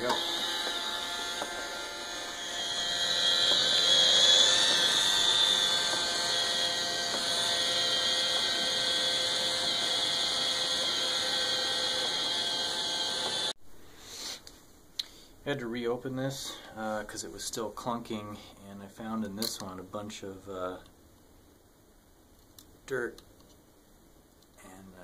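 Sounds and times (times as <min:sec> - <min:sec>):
robot vacuum motor whine: 0:00.0 - 0:13.6.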